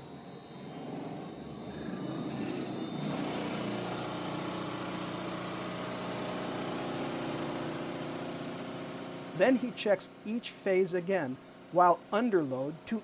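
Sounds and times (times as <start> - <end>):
electric motors humming: 0.0 - 10.1.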